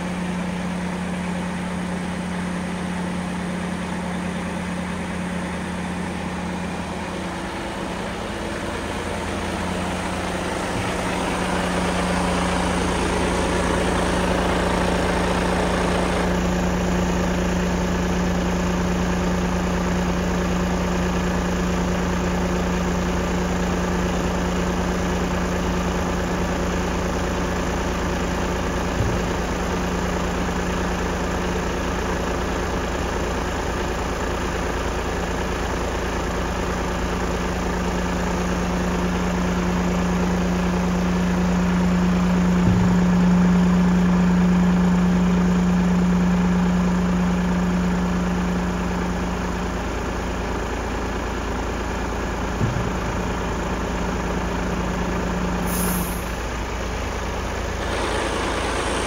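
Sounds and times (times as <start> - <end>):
hydraulic hum: 0.0 - 18.2, 37.4 - 59.0
diesel truck engine running: 0.0 - 59.0.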